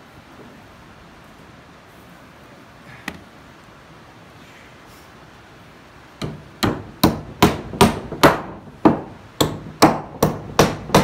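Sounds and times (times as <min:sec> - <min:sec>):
hammer nailing wooden boards: 0:06.2 - 0:11.0.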